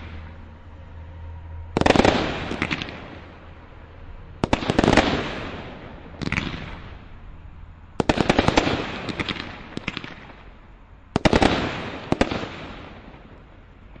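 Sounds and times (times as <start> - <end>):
fireworks bangs and pops: 1.8 - 3.4, 4.4 - 7.0, 8.0 - 10.5, 11.1 - 14.0.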